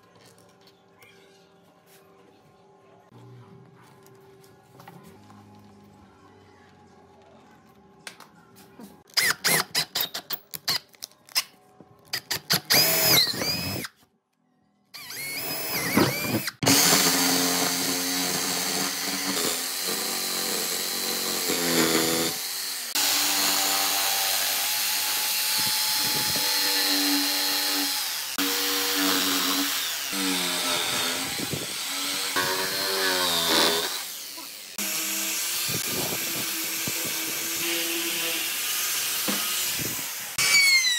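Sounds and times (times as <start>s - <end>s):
small power tool: 12.1s - 13.9s, 15.0s - 40.9s
jigsaw cutting through wood: 12.6s - 13.9s, 15.0s - 40.9s.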